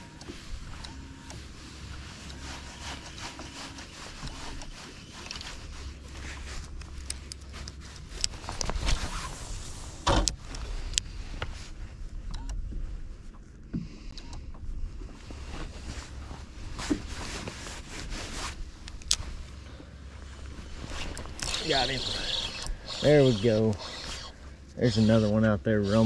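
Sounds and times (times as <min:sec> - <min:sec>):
low steady rumble: 0:00.0 - 0:26.0
fishing reel whirring and clicking: 0:21.1 - 0:24.4.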